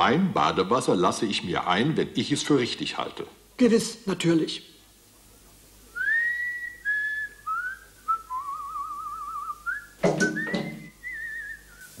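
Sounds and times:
man whistling a tune: 6.0s - 12.0s.

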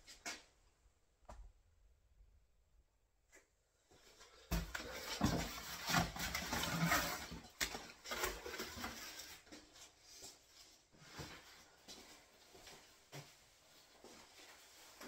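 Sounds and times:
rustling and scraping: 3.9s - 15.0s.

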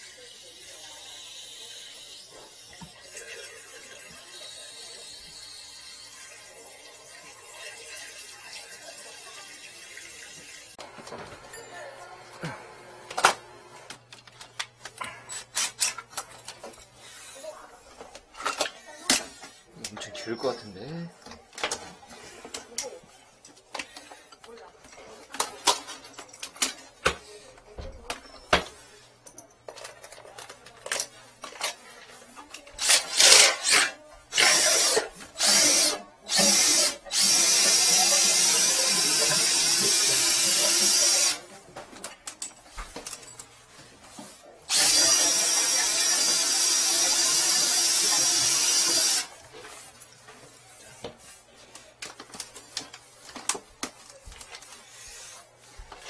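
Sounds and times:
cordless drill spinning: 32.8s - 41.4s, 44.7s - 49.3s.

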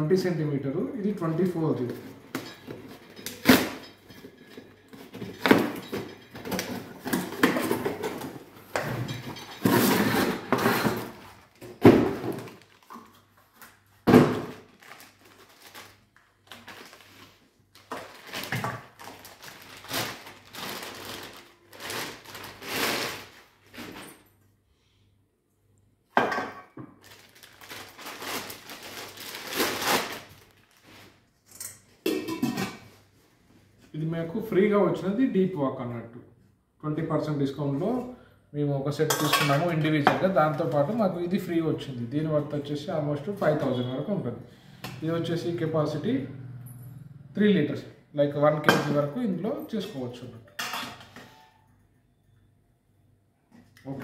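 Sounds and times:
cardboard and plastic rustling: 9.6s - 24.3s, 27.0s - 31.2s.

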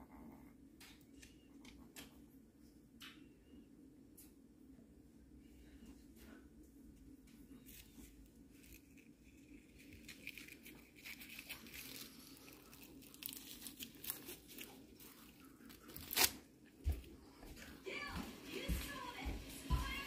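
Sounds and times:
dry scratching and crinkling: 7.4s - 17.0s.

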